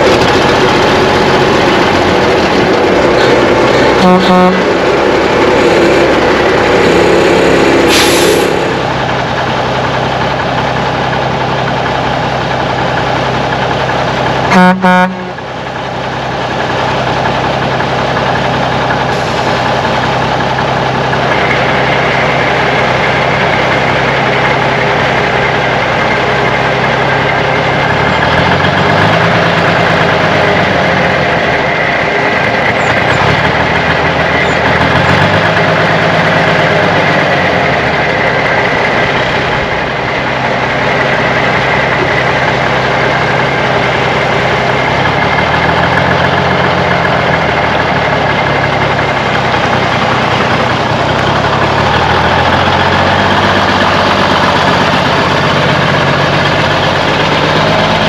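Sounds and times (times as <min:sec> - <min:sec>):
diesel truck engine running: 0:00.0 - 0:58.0
truck horn blast: 0:03.1 - 0:09.0, 0:14.5 - 0:15.5.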